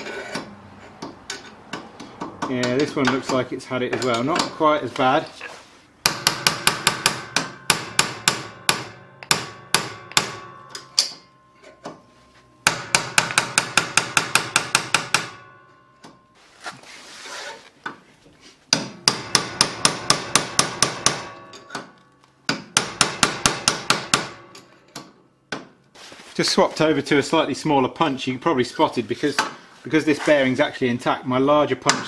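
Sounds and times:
hammer tapping steel punch: 0:00.4 - 0:04.6, 0:06.0 - 0:16.2, 0:18.7 - 0:25.8.

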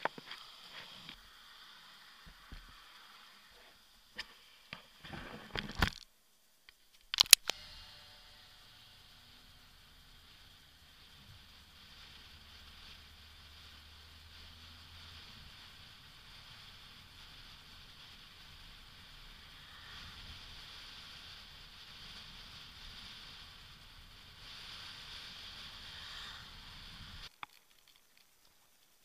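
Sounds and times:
wind and road rushing noise: 0:11.0 - 0:27.3.

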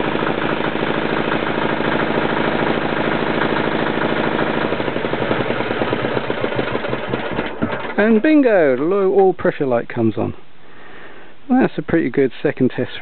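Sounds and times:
diesel engine idling and stopping: 0:00.0 - 0:08.3.

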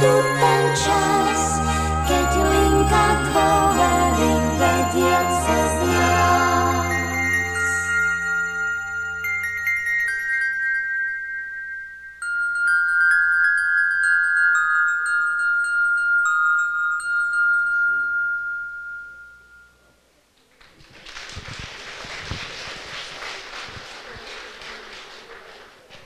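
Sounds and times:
chime tones ringing: 0:00.0 - 0:20.1.

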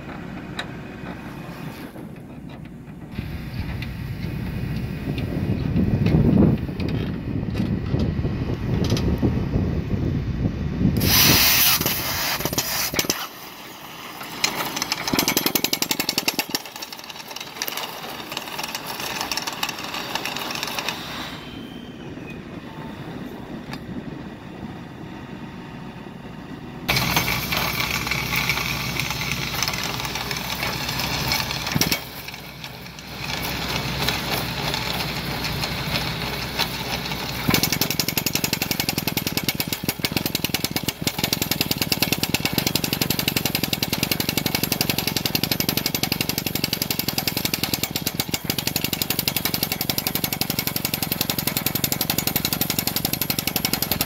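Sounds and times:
excavator engine running: 0:00.0 - 0:54.0
hydraulic hammer rattling: 0:11.0 - 0:13.4, 0:14.1 - 0:21.2, 0:26.9 - 0:54.0.

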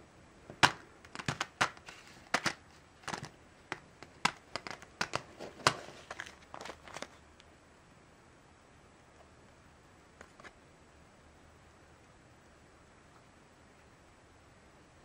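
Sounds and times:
plastic blister pack crinkling: 0:00.6 - 0:07.2.

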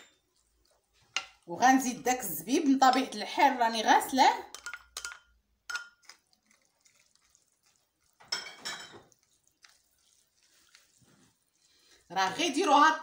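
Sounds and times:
spoon clattering in clay dish: 0:04.5 - 0:06.2, 0:08.2 - 0:09.8
small ticks and drips: 0:06.0 - 0:08.4, 0:09.0 - 0:12.1.

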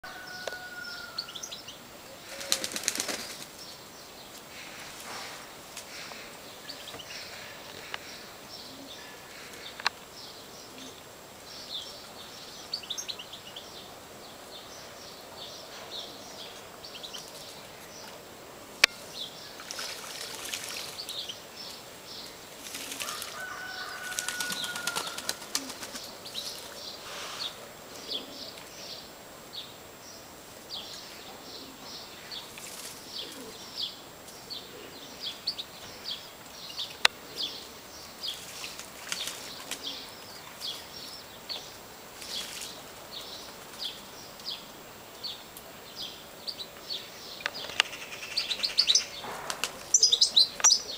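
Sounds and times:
pigeons flapping wings: 0:02.2 - 0:03.6, 0:22.6 - 0:26.7, 0:38.4 - 0:39.9, 0:49.4 - 0:49.9
bird splashing in water: 0:02.3 - 0:03.6, 0:19.5 - 0:21.4, 0:22.5 - 0:27.4, 0:38.3 - 0:40.9.

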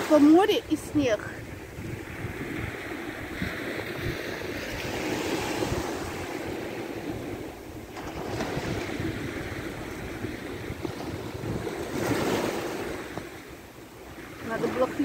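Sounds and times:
wind buffeting microphone: 0:00.0 - 0:15.0
waves washing on pebbles: 0:02.4 - 0:13.5.

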